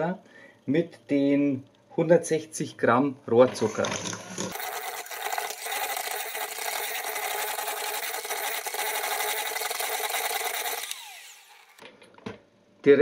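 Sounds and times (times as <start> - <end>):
electric mixer running: 4.4 - 11.8.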